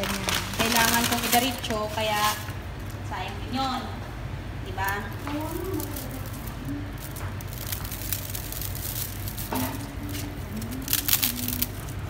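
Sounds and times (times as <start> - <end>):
noodles crackling and squishing: 0.0 - 3.0, 4.6 - 12.0
steady low hum: 0.0 - 12.0.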